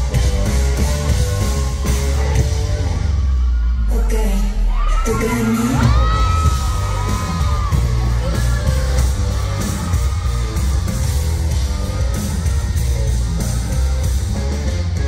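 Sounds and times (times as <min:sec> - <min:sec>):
heavy bass line: 0:00.0 - 0:15.0
live pop band music: 0:00.0 - 0:15.0
person singing: 0:03.9 - 0:09.6.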